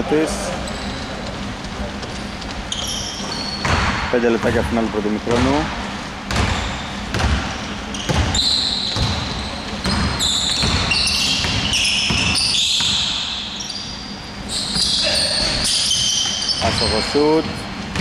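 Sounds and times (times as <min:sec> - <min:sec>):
sneaker squeaks on court: 0:02.6 - 0:04.6, 0:06.3 - 0:18.0
basketball bouncing on wooden floor: 0:02.7 - 0:04.7, 0:05.3 - 0:05.7, 0:06.3 - 0:13.2.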